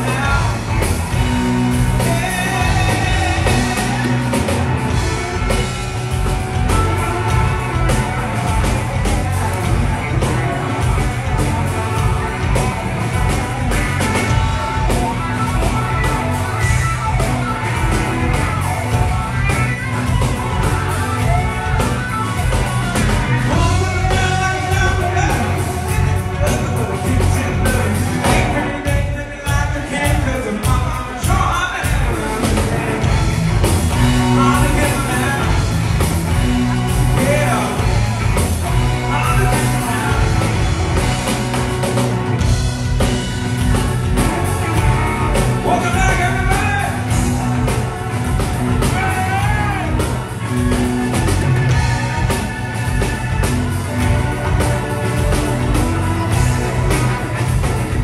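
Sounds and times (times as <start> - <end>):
person singing: 0.0 - 5.5, 23.4 - 33.3, 48.7 - 50.8
bass guitar: 0.0 - 58.0
drum kit: 0.0 - 58.0
electric guitar: 0.0 - 58.0.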